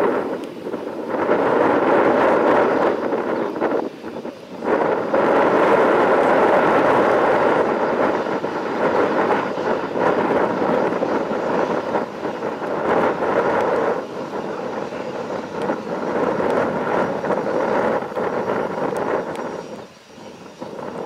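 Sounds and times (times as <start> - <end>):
jet engine taxiing: 0.0 - 21.0.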